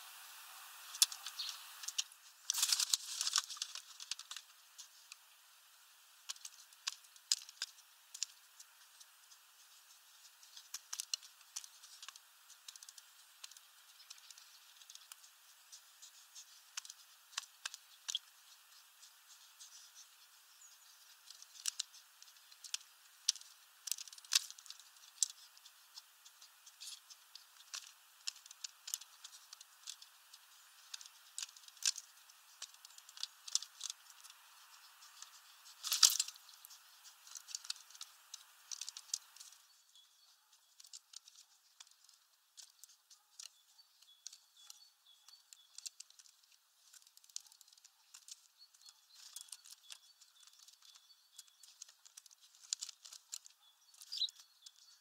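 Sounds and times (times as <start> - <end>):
pigeon beak tapping plastic: 21.0 - 39.6.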